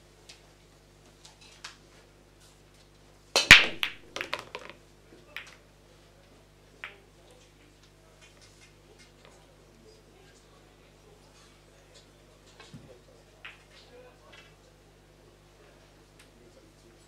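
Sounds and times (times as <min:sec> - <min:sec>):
pool balls clacking: 0:03.4 - 0:04.8
pool break crack: 0:03.4 - 0:04.8.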